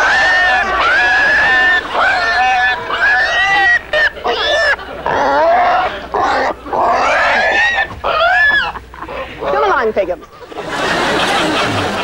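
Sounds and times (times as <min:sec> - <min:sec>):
pig squealing: 0:00.0 - 0:09.2.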